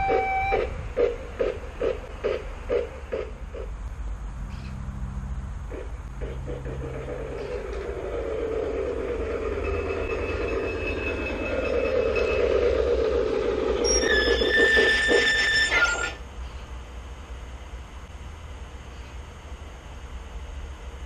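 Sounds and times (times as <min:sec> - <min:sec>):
model train running on rails: 0:00.0 - 0:03.8, 0:05.7 - 0:16.3
high squeal: 0:08.3 - 0:16.2.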